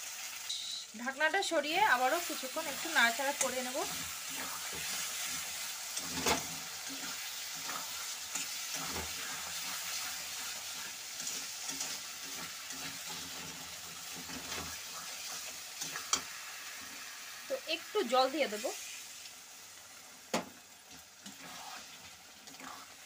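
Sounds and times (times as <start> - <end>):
food sizzling: 0.0 - 23.0
metal spatula scraping a pan: 3.4 - 17.0, 21.2 - 23.0.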